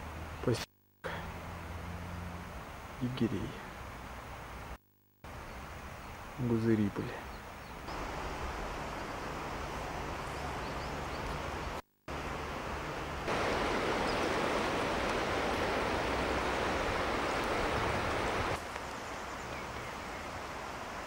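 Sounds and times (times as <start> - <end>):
outdoor hiss: 0.0 - 21.0
river rushing over stones: 7.9 - 21.0.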